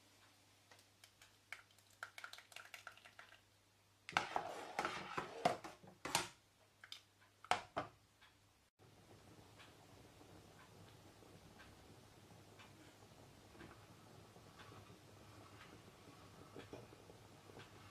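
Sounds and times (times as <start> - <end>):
ladle scraping and sloshing soup: 4.1 - 5.8.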